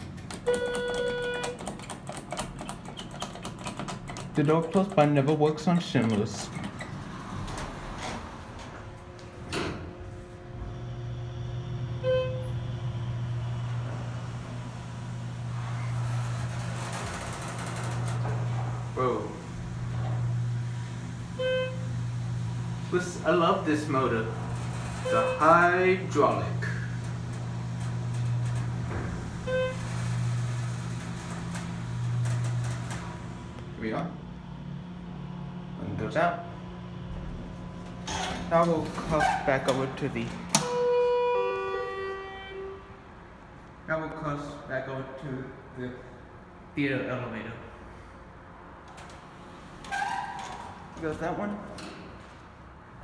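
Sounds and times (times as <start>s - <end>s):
elevator doors sliding shut: 0.0s - 35.6s, 36.2s - 43.3s, 47.9s - 53.0s
hydraulic pump motor hum: 0.0s - 43.8s
short beep: 12.0s - 12.5s.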